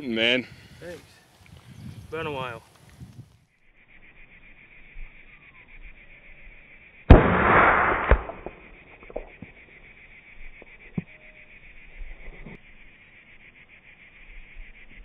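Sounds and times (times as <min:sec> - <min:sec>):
rifle shot with rolling echo: 0:07.1 - 0:09.2.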